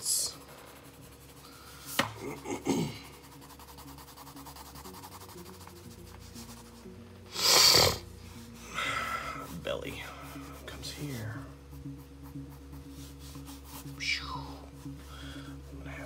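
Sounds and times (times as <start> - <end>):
pencil scratching on paper: 0.0 - 2.0, 2.9 - 6.9, 10.2 - 14.0.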